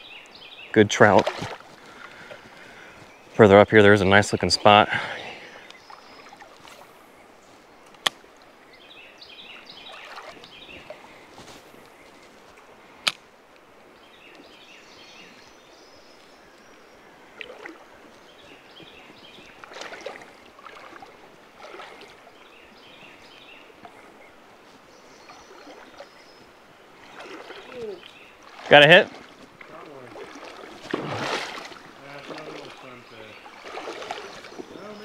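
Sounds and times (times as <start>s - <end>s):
small river running over rocks: 0.8s - 35.0s
water sloshing and knocking: 1.0s - 2.4s, 9.9s - 11.0s, 19.2s - 22.2s, 27.0s - 34.9s.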